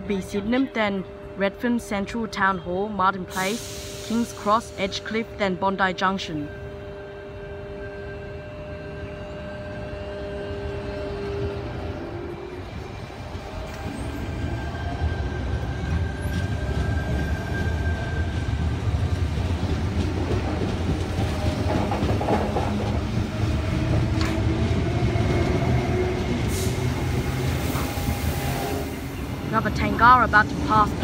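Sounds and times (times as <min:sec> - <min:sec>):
electric train rumble: 0:00.0 - 0:31.0.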